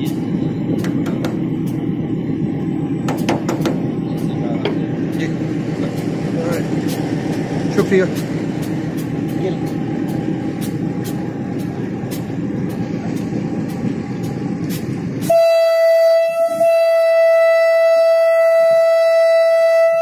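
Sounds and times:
locomotive rumble: 0.0 - 20.0
locomotive horn blast: 15.2 - 20.0.

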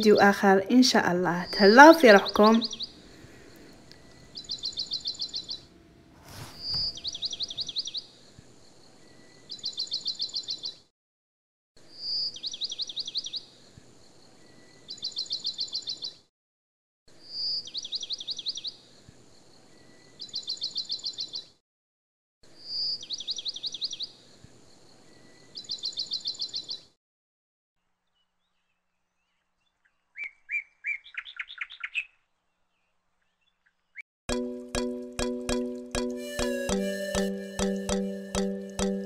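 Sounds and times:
songbird singing: 0.0 - 10.8, 11.9 - 16.2, 17.2 - 21.5, 22.6 - 26.9, 28.1 - 39.0
soft knock: 6.2 - 7.2.

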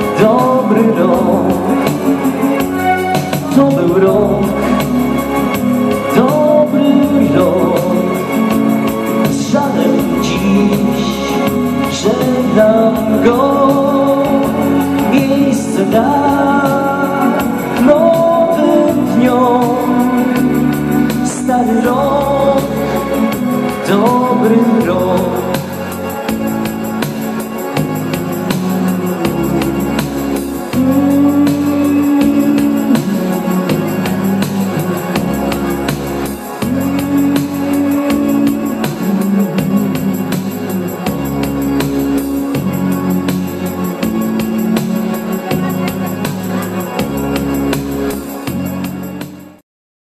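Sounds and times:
electronic keyboard dance music: 0.0 - 49.6.

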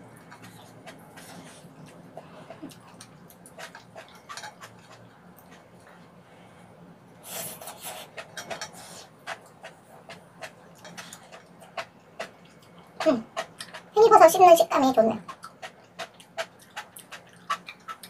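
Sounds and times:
slurping noodles: 7.2 - 9.8.

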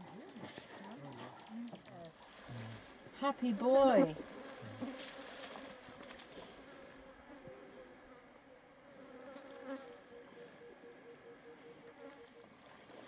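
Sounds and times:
flying insect buzzing: 3.9 - 12.4.

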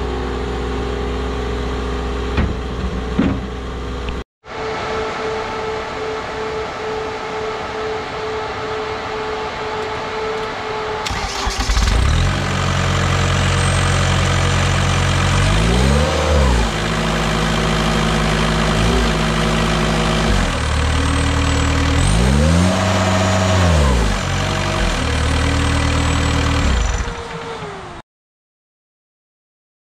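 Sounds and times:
diesel engine running and revving: 5.6 - 28.0.

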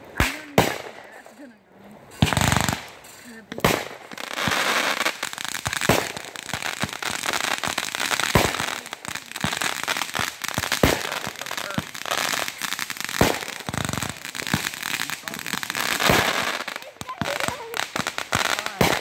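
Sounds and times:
firework shells bursting bangs: 0.0 - 19.0
fireworks crackling pops: 0.0 - 19.0.

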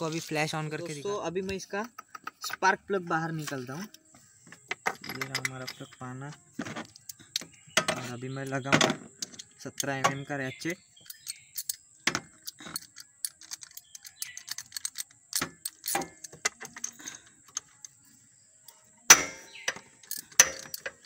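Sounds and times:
metal tools clinking: 4.8 - 6.2, 11.0 - 17.8, 19.1 - 21.0
ratchet clicks: 11.0 - 11.8, 12.4 - 17.9, 20.0 - 21.0.

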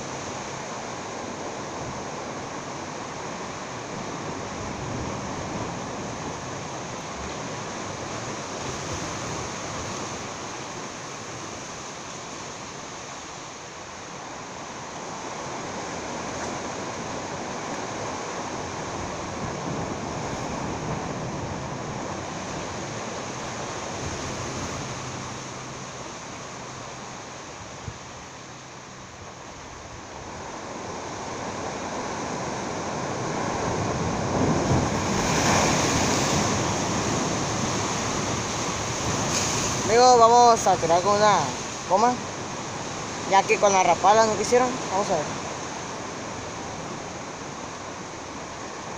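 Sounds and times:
sea waves against rocks: 0.0 - 48.9
wind on microphone: 15.2 - 25.5, 29.1 - 43.4.

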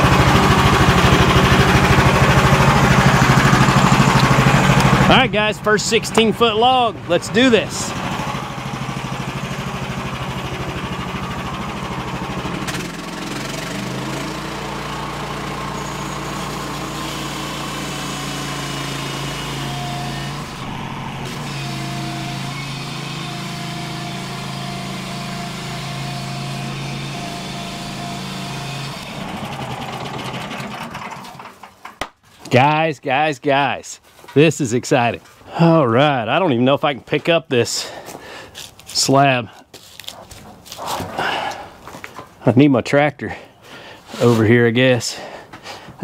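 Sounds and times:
sawmill engine running: 0.0 - 33.2
band blade cutting log: 16.4 - 29.4.

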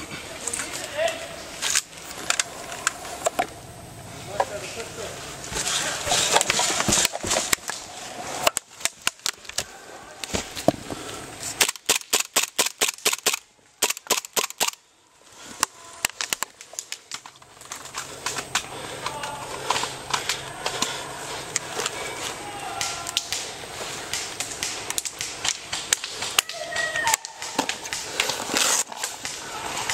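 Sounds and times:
airsoft pistols firing: 11.6 - 14.8.

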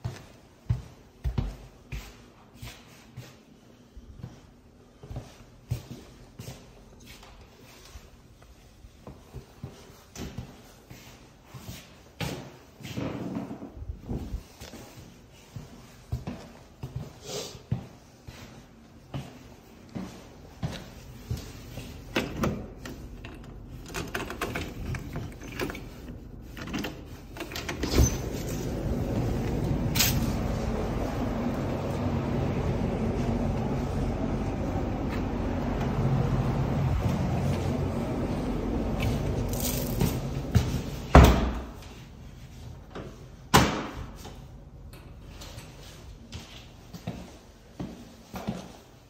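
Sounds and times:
footsteps on wooden floor: 0.0 - 3.4, 28.3 - 42.0, 46.3 - 49.0
outdoor city noise: 13.8 - 49.0
door knob and latch rattling: 23.4 - 25.9
outdoor street noise: 28.4 - 41.0
door thump: 41.1 - 41.7.

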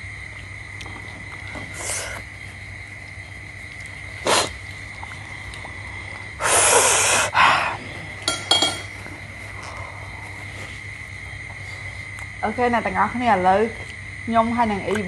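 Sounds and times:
loud slurping: 4.2 - 4.6, 6.4 - 7.4.

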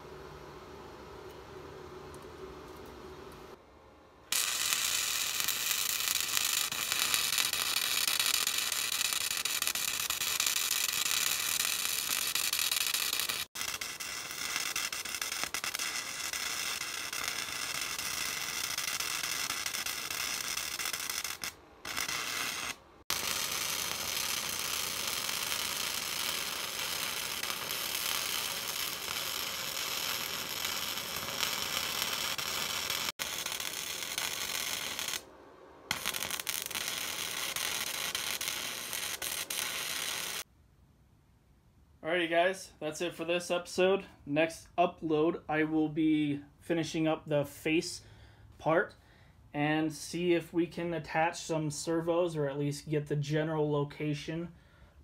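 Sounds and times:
welding arc sizzling: 4.3 - 35.3, 35.9 - 40.5.

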